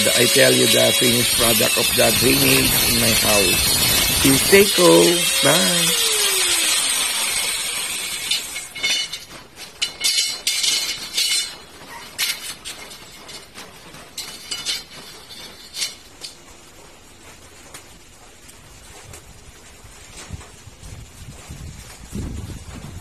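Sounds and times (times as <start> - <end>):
angle grinder spinning down: 0.0 - 11.6
steel bars clinking: 0.0 - 16.4.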